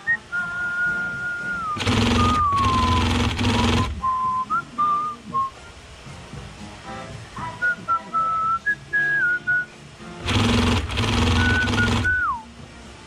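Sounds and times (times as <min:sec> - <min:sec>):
person whistling a melody: 0:00.0 - 0:05.7, 0:07.4 - 0:09.9, 0:11.2 - 0:12.6
sewing machine stitching: 0:01.8 - 0:04.0, 0:10.2 - 0:12.4.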